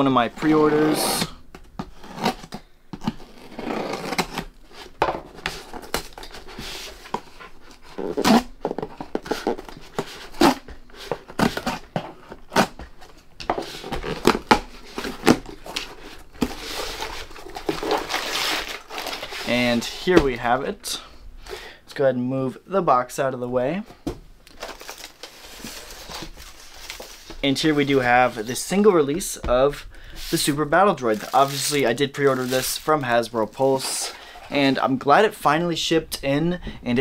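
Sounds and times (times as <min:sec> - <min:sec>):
cardboard rubbing: 0:01.8 - 0:20.4
knife cutting packing tape: 0:03.2 - 0:04.5.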